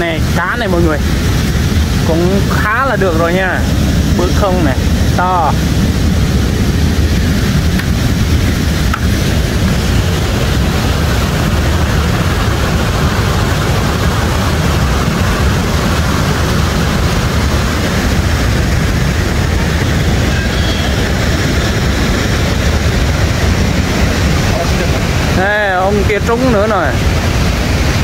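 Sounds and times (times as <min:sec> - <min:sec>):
river water pouring over a weir: 0:00.0 - 0:28.0.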